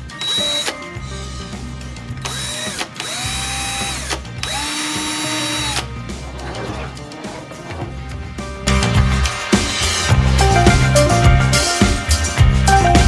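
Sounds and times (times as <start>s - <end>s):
cordless drill motor spinning: 0.2s - 0.7s, 2.2s - 5.9s.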